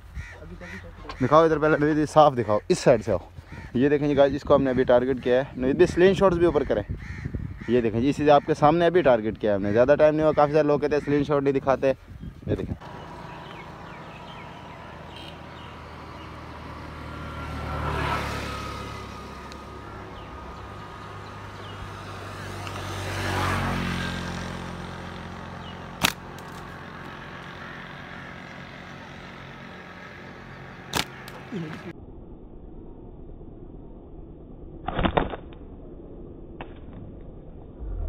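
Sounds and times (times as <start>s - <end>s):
distant vehicles passing: 0.0s - 12.0s, 12.6s - 34.8s, 35.6s - 38.0s
outdoor background noise: 0.0s - 38.0s
sharp click: 30.9s - 31.4s.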